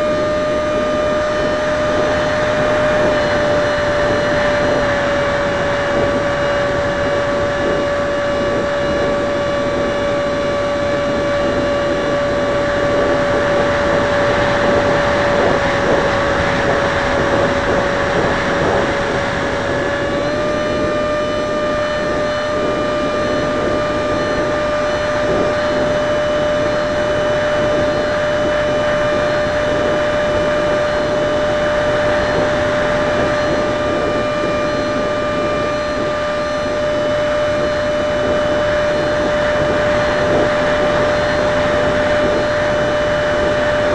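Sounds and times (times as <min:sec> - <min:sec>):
electric ducted fan whine: 0:00.0 - 0:43.9.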